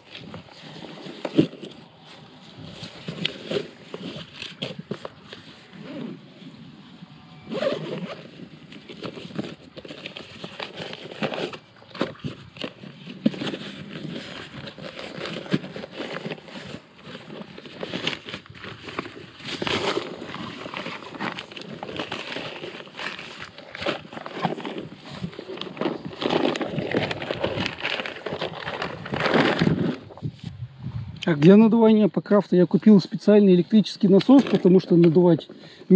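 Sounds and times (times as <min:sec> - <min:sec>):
zipper unzipping: 0:05.7 - 0:06.2, 0:07.5 - 0:08.3
nylon fabric rustling: 0:07.5 - 0:30.6.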